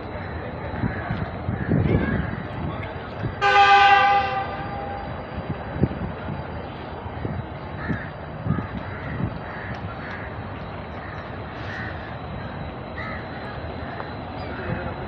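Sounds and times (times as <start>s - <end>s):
steady background noise: 0.0s - 15.0s
crows cawing: 7.8s - 14.8s.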